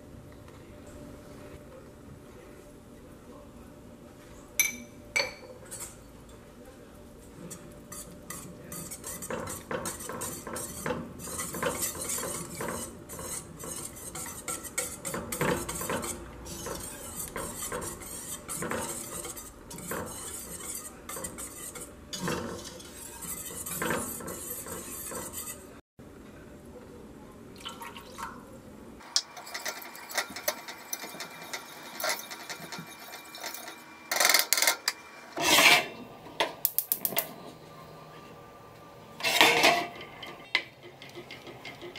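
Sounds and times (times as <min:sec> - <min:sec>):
whisk scraping metal pot: 0:05.6 - 0:06.2, 0:07.3 - 0:25.8, 0:29.0 - 0:36.0, 0:39.2 - 0:41.9.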